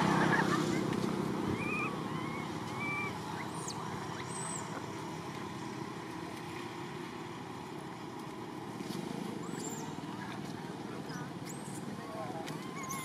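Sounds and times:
low background noise: 0.0s - 13.0s
faint high-pitched squeaks: 12.5s - 13.0s.

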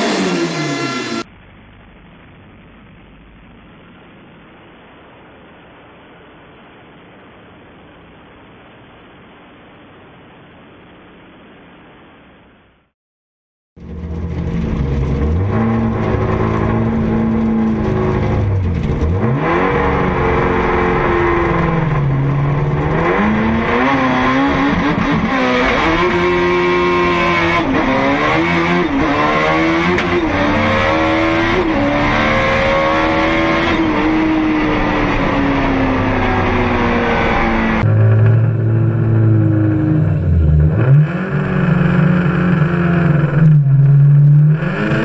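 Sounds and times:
car engine accelerating and shifting gears: 0.0s - 1.3s, 13.8s - 45.0s.

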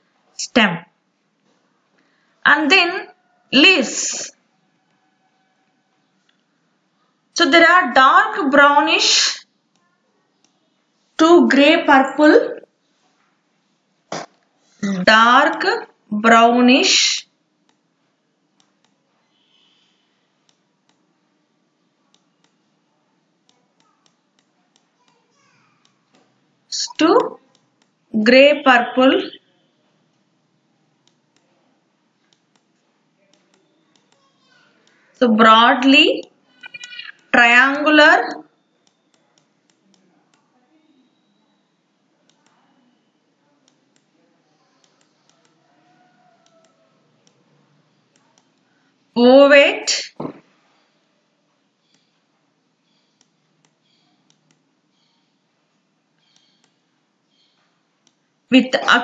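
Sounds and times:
faint clicks: 22.1s - 22.8s, 32.2s - 35.1s, 56.2s - 56.8s.

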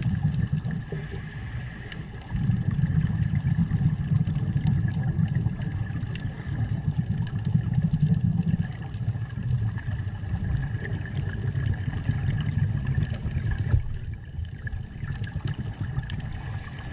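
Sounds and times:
underwater rumble: 0.0s - 16.9s.

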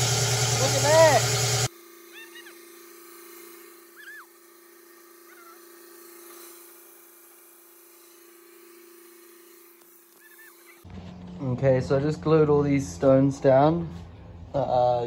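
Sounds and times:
stone saw humming: 0.0s - 10.9s.

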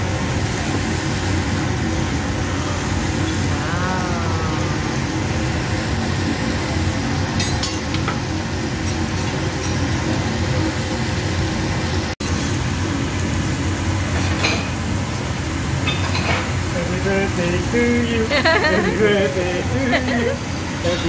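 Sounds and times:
ventilation hood rumble: 0.0s - 21.0s
metal spatula clinking on griddle: 7.4s - 8.1s.

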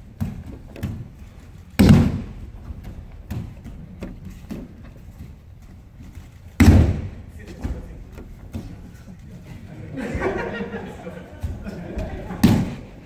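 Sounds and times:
body landing on mats: 0.0s - 5.4s, 6.4s - 7.9s.

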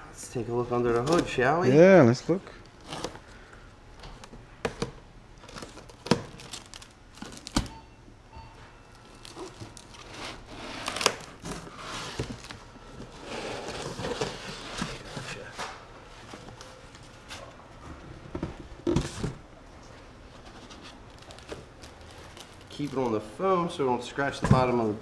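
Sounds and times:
plastic wrap crinkling and tearing: 5.4s - 7.6s, 9.0s - 12.6s, 21.0s - 23.3s.

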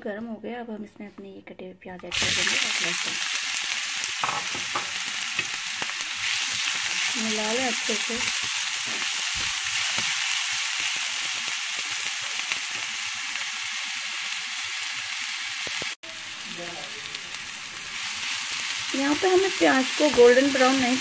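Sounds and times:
onion sizzling in hot oil: 2.0s - 21.0s.

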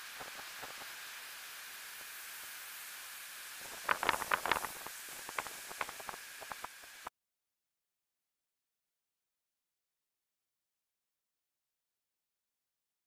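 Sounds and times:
steady hiss: 0.0s - 7.1s
sharp crackles: 3.6s - 7.0s.

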